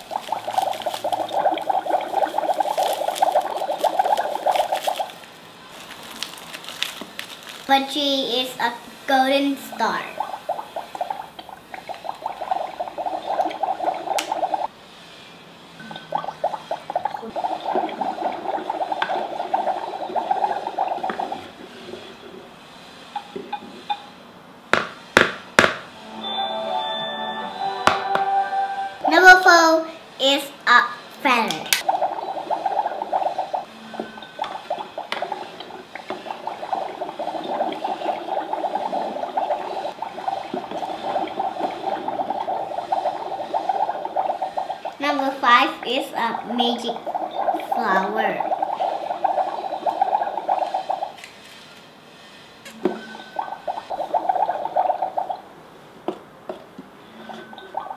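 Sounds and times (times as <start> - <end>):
water bubbling and gurgling: 0.0 - 5.2, 9.6 - 14.7, 15.8 - 22.5, 31.8 - 51.2, 52.9 - 55.5, 57.0 - 57.9.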